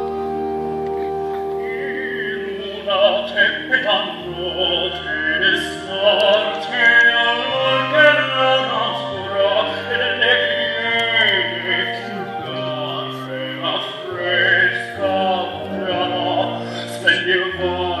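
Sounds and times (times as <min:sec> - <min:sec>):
accompaniment with slow bass line: 0:00.0 - 0:18.0
operatic singing: 0:00.0 - 0:18.0.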